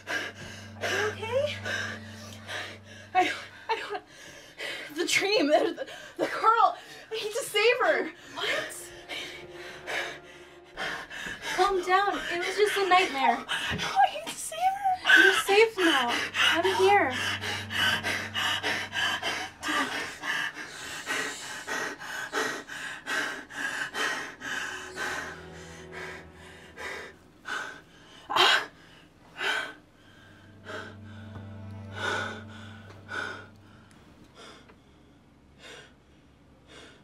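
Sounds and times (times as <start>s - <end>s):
woman crying and sobbing: 0.0s - 10.2s, 11.3s - 21.4s
low steady hum: 0.0s - 36.2s.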